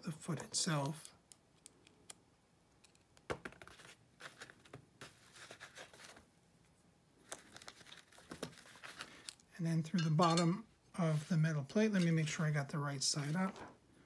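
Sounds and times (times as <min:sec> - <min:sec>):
small screw clicks and taps: 0:02.8 - 0:03.2.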